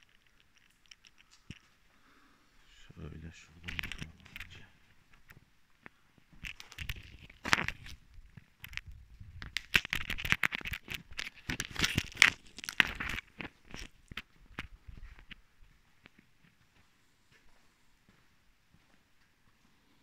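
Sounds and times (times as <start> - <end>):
microphone crackling and rustling: 3.5 - 16.8.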